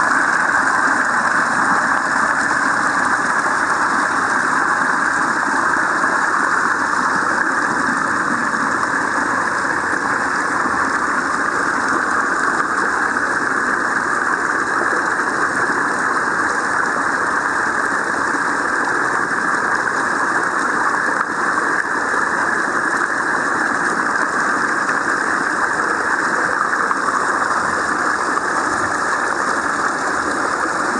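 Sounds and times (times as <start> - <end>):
water rushing over concrete: 0.0 - 30.9.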